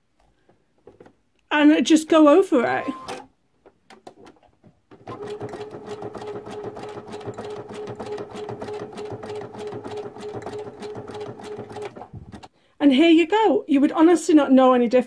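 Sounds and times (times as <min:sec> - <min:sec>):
sewing machine stitching: 0:04.2 - 0:12.5.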